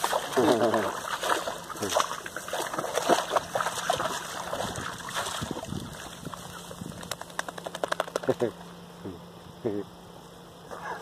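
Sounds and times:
dog splashing in water: 0.0s - 8.3s.

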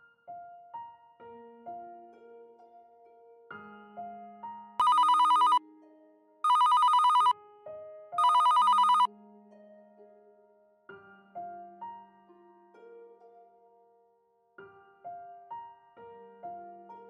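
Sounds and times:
soft piano music: 0.0s - 6.4s, 7.3s - 17.0s
telephone ringing: 4.8s - 5.6s, 6.5s - 7.3s, 8.2s - 9.1s.

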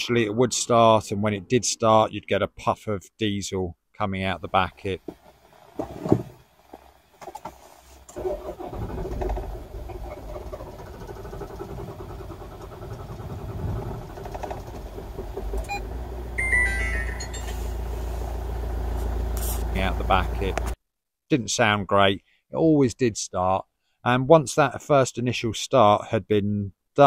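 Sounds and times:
diesel engine cranking and starting: 8.0s - 20.8s
short electronic beep: 16.4s - 17.8s.

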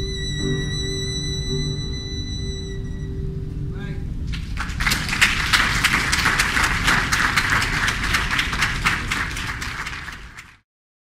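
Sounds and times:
audience applauding: 4.3s - 10.6s.

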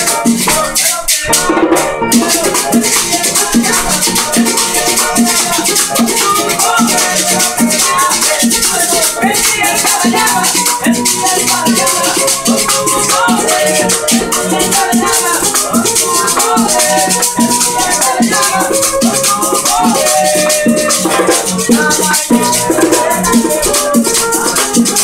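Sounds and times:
maracas shaking: 0.0s - 25.0s
plucked guitar: 0.0s - 25.0s
string melody: 0.0s - 25.0s.

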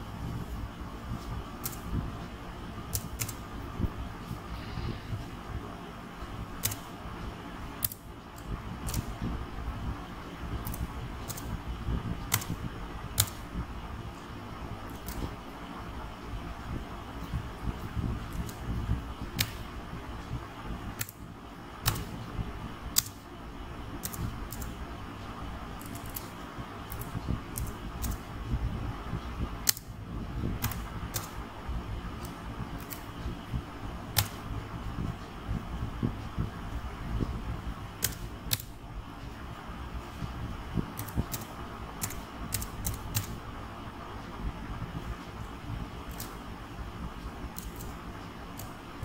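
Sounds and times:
low background hum: 0.0s - 49.0s
keyboard keystrokes: 2.9s - 3.4s, 6.6s - 6.9s, 7.8s - 9.1s, 12.2s - 12.6s, 13.2s - 13.4s, 19.4s - 19.6s, 24.0s - 24.8s, 25.8s - 28.2s, 30.6s - 31.4s, 34.1s - 34.4s, 38.0s - 38.7s, 40.9s - 43.4s, 46.1s - 46.4s, 47.5s - 48.8s.

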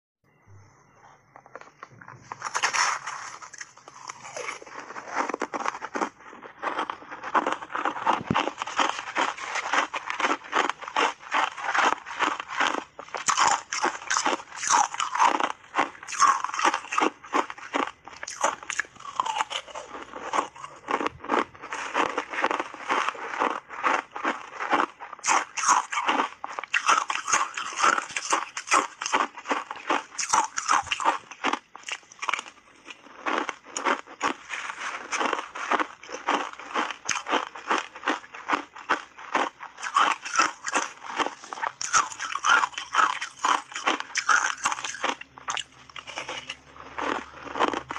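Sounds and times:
crunching and chewing ice: 0.5s - 47.9s.

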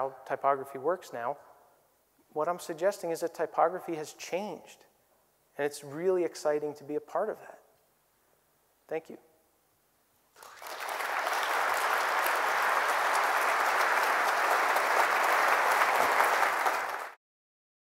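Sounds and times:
audience applauding: 10.4s - 17.2s.

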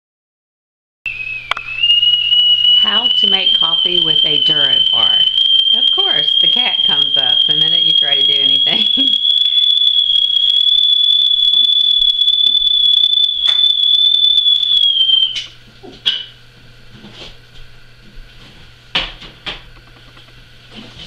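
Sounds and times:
high-pitched whistling tone: 1.1s - 15.6s.

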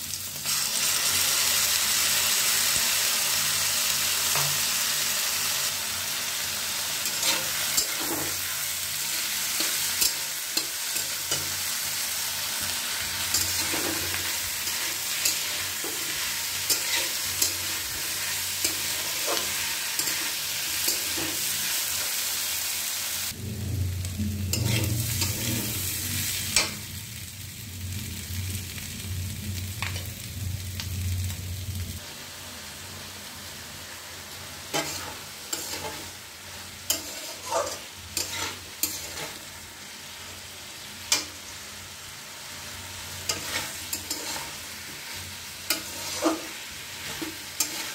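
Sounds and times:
vegetables sizzling in a pan: 0.0s - 47.9s
spatula scraping a pan: 7.0s - 11.8s, 12.6s - 22.4s, 24.5s - 26.8s, 34.7s - 39.5s, 43.2s - 47.9s
low hum: 23.3s - 32.0s.

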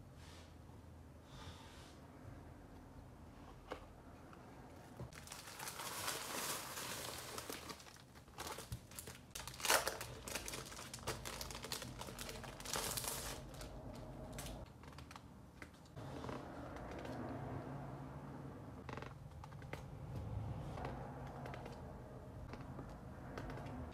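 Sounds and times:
plastic bag rustling and crinkling: 5.0s - 16.0s
sharp plastic crackle: 5.1s - 16.0s.

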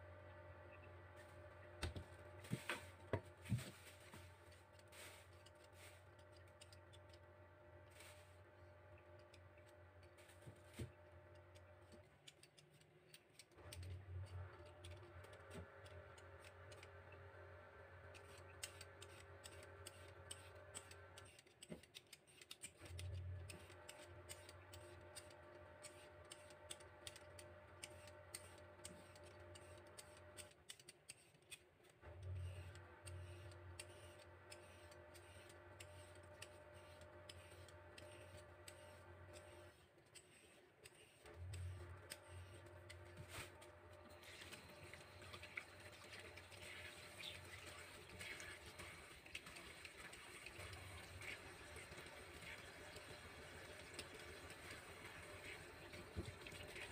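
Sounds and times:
steady background hum: 0.0s - 56.9s
vegetable peeler scraping: 18.1s - 52.6s.

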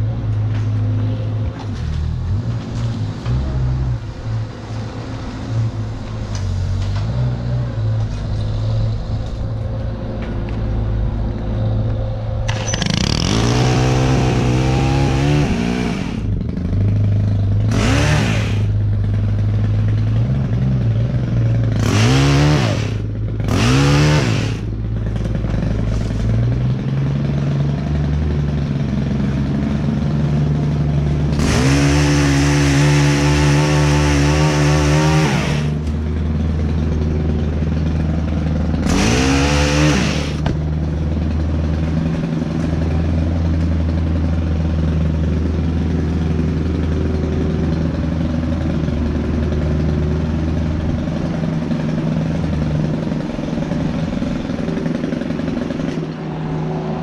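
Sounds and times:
engine idling: 8.0s - 57.0s
pole saw cutting branches: 12.5s - 18.9s, 21.4s - 26.4s, 31.3s - 36.0s, 37.8s - 40.6s, 52.9s - 56.5s.

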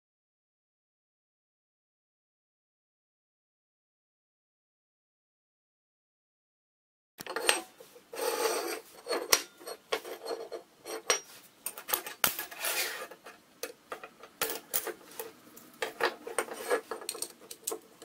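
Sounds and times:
metal scraping on bench: 7.2s - 17.8s
metal bars clinking: 7.2s - 18.0s.

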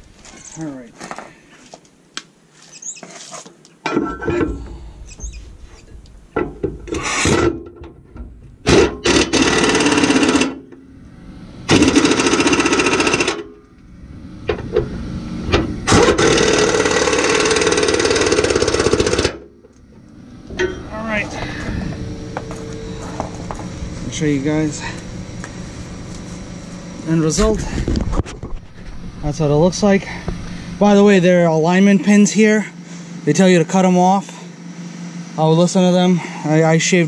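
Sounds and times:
impact wrench hammering: 8.6s - 10.8s, 11.7s - 13.5s, 15.6s - 19.6s
hardware clinking: 20.5s - 21.0s.

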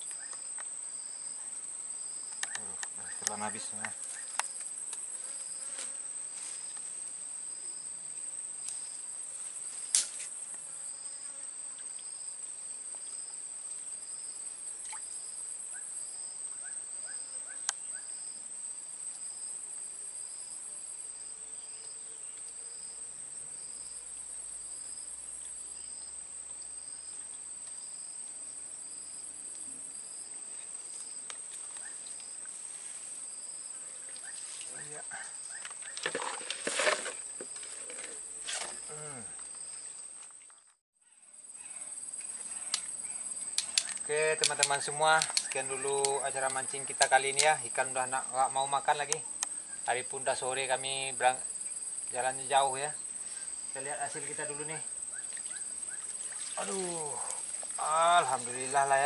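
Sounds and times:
insects droning high-pitched: 0.0s - 59.0s
soft repeating insect chirp: 0.0s - 59.0s
sharp clicks: 43.5s - 47.5s.

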